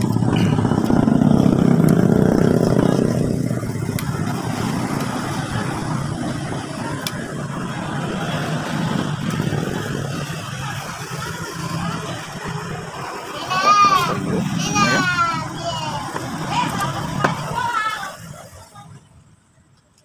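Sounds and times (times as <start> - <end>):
vehicle engine running: 0.0 - 19.2.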